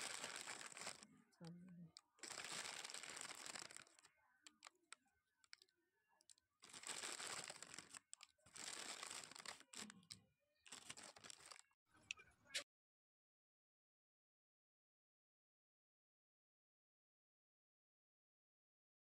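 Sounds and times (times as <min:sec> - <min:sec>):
potato chips crinkling and crunching: 0:00.0 - 0:05.6, 0:06.6 - 0:11.7.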